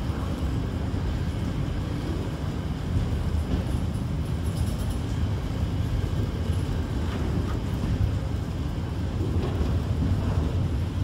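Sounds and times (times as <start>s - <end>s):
freight train wheels rumbling: 0.0s - 11.0s.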